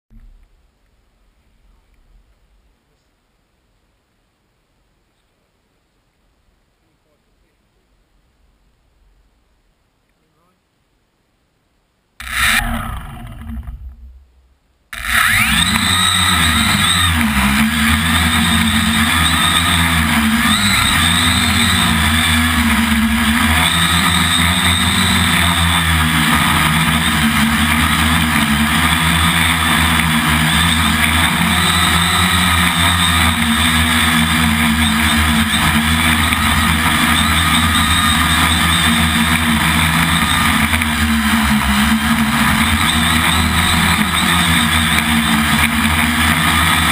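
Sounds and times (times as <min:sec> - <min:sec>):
drone motors whining: 0:12.2 - 0:46.9.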